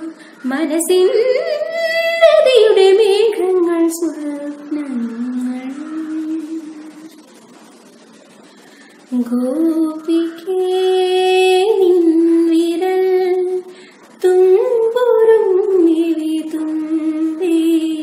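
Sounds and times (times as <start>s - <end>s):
woman singing solo: 0.0s - 7.2s.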